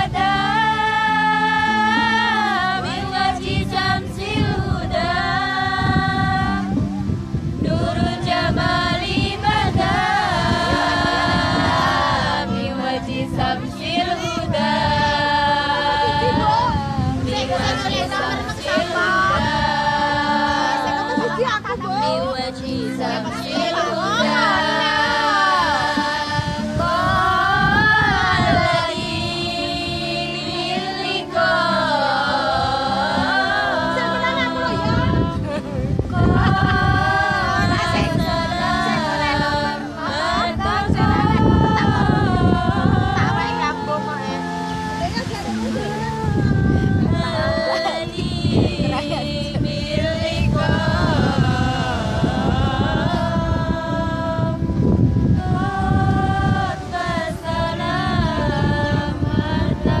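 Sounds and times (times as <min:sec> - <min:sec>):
women singing in unison: 0:00.0 - 1:00.0.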